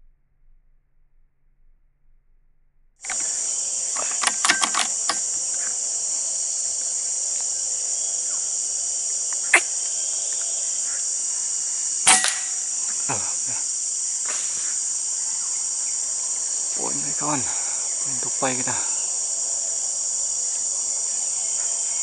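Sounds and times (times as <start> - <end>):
quick clicks: 3.0 - 5.4
high-pitched insect drone: 3.1 - 22.0
air rifle shots: 12.0 - 12.6.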